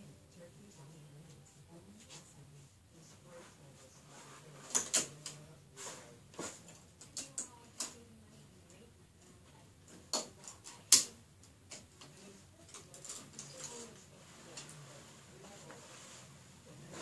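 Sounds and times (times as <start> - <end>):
sharp clicks and light knocks: 9.9 - 13.9.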